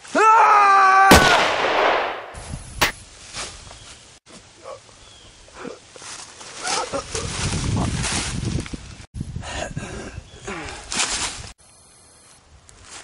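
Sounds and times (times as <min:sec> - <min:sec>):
echoing gunshot: 0:01.1 - 0:02.9
sharp crack: 0:01.1 - 0:03.0.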